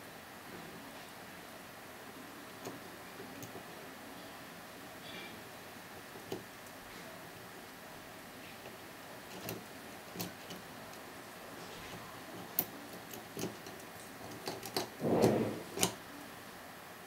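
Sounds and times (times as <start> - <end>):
handling noise: 8.4 - 16.0.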